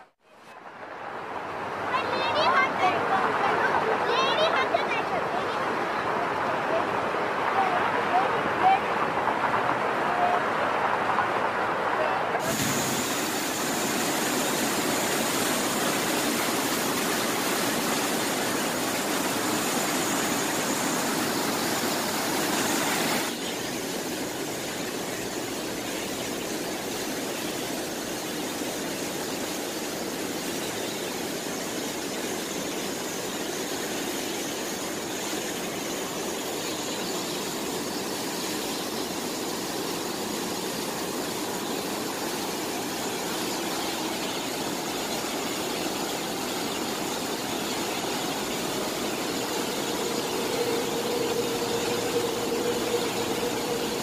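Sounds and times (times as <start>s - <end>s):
waterfall rushing: 0.0s - 54.0s
steady low hum: 44.5s - 54.0s
traffic hum: 46.7s - 54.0s.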